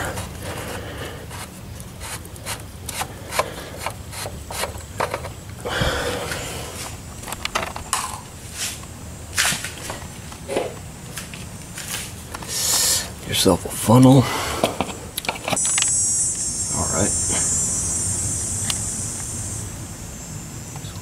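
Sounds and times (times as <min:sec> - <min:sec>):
plastic cap clicking and scraping: 0:01.3 - 0:05.4.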